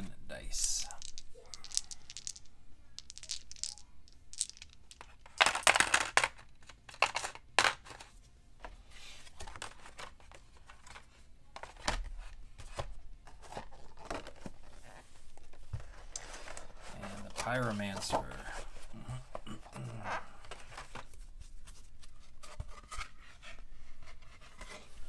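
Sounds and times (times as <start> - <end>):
plastic dice clicking and rattling: 0.6 - 7.8.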